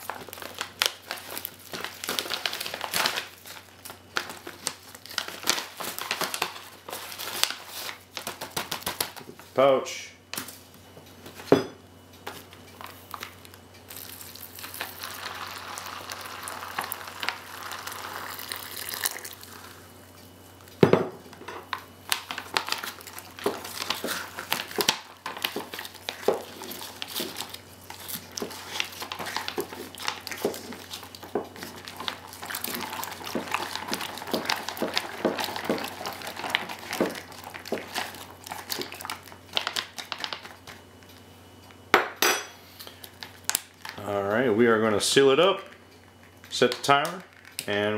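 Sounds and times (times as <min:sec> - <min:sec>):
spoon stirring in crinkly pouch: 0:12.8 - 0:19.8, 0:22.0 - 0:40.8
hot water pouring into pouch: 0:14.0 - 0:19.6.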